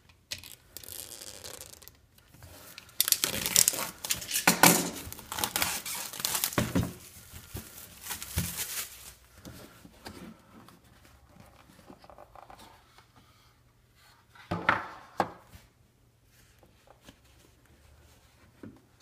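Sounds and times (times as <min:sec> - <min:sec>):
plastic wrap crinkling and tearing: 0:02.7 - 0:09.3
knife slitting plastic wrap: 0:03.0 - 0:09.2.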